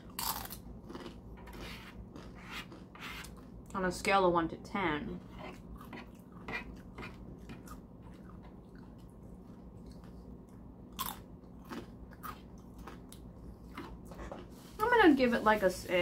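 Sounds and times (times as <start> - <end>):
person chewing: 0.0 - 3.5, 5.5 - 14.7.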